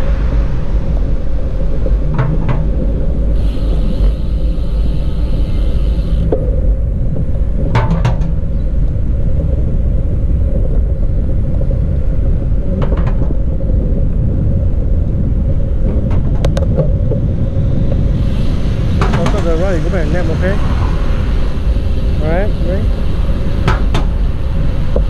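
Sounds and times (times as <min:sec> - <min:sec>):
wind rumbling over microphone: 0:00.0 - 0:25.0
bicycle clicks and rattles: 0:02.1 - 0:09.5, 0:15.8 - 0:20.3.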